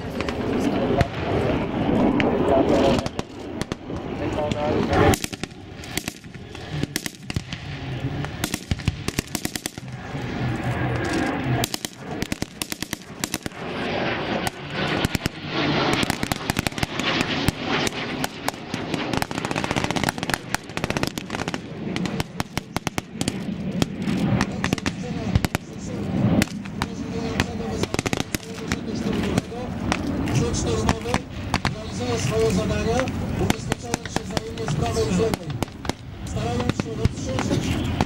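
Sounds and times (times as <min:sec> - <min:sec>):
rifle shots: 0:05.0 - 0:07.6, 0:08.3 - 0:10.0, 0:11.1 - 0:13.7
machine-gun fire: 0:08.4 - 0:09.9.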